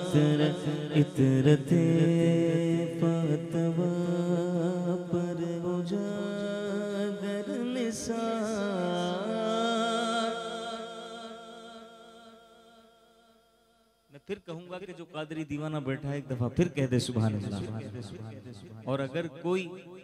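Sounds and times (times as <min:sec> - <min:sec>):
man singing: 0:00.0 - 0:12.4.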